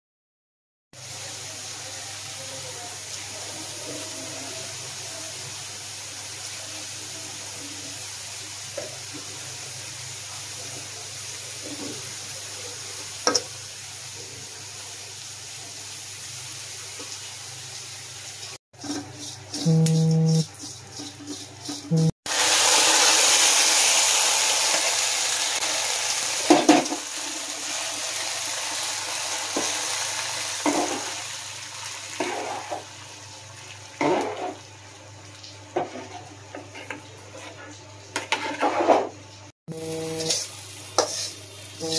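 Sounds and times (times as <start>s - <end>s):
loud sizzle of frying seeds: 1.0s - 37.5s, 39.7s - 41.9s
onions sizzling in oil: 1.0s - 37.5s, 39.7s - 41.9s
spatula scraping pan: 18.8s - 22.2s, 32.2s - 32.8s, 34.0s - 34.6s, 35.8s - 41.9s.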